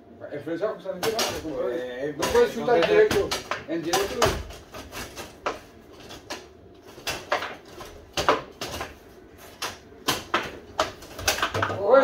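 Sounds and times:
table football knocks and clacks: 0:02.2 - 0:04.7, 0:05.3 - 0:09.0, 0:09.6 - 0:11.9.

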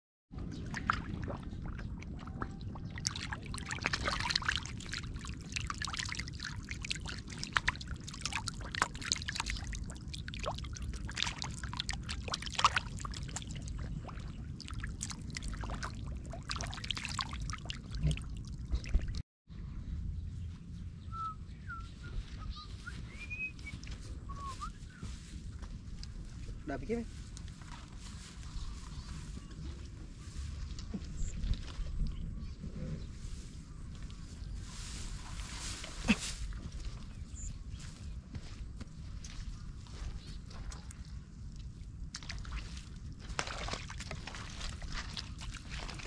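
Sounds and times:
fish splashing in water: 0:00.5 - 0:19.2, 0:42.1 - 0:46.0.

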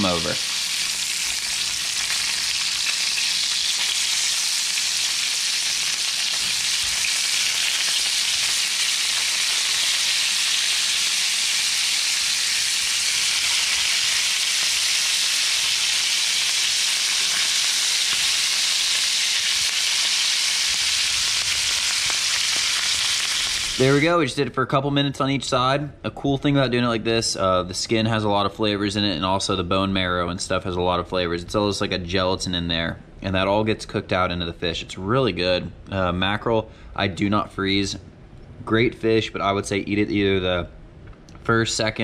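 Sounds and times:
fish sizzling in oil in a pan: 0:00.0 - 0:24.0.

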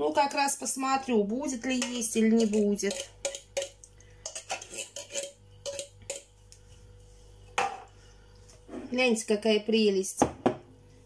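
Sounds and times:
tin can and cutlery clinking on bowl: 0:01.8 - 0:06.3.

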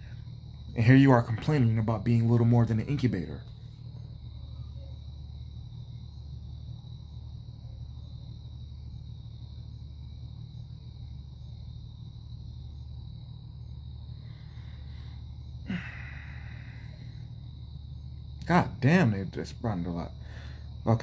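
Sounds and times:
low hum: 0:00.0 - 0:21.0
faint high-pitched tone: 0:04.5 - 0:05.0.

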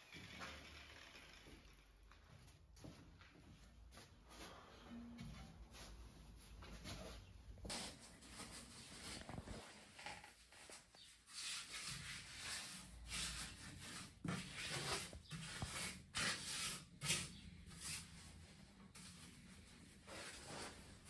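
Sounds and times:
trowel scraping wet mortar: 0:11.4 - 0:18.0.

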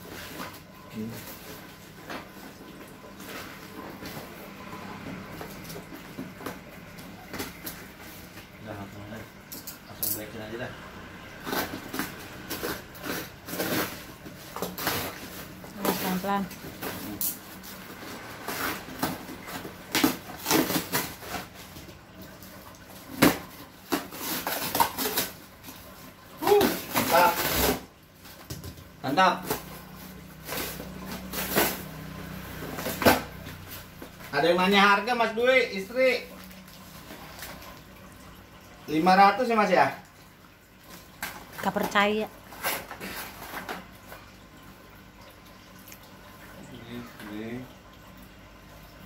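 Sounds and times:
cardboard and plastic rustling: 0:00.0 - 0:09.2, 0:11.4 - 0:35.0, 0:40.8 - 0:44.3.

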